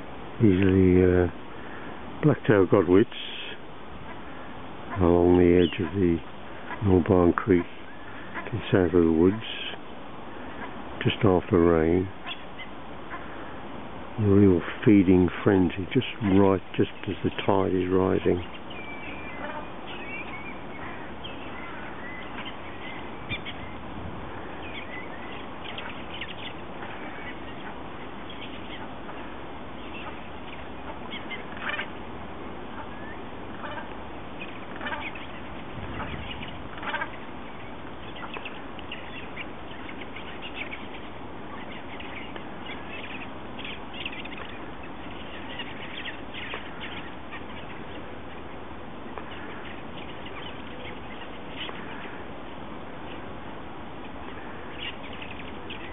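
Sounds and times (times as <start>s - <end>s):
background hiss: 0.0s - 55.9s
waterbirds calling: 0.0s - 55.9s.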